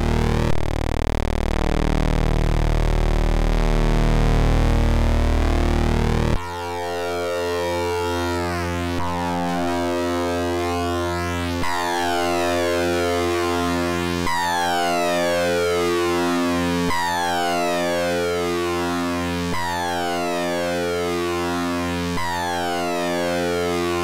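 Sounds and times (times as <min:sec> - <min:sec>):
synthesizer drone: 0:00.0 - 0:00.6.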